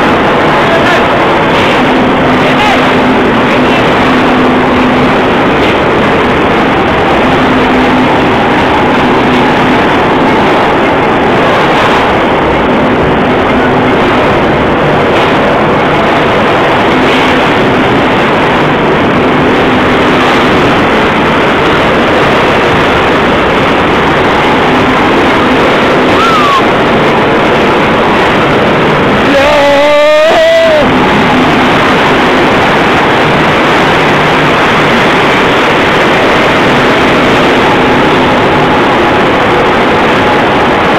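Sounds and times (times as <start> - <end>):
low machine hum: 0.0 - 40.9
rolling mill din: 0.0 - 40.9.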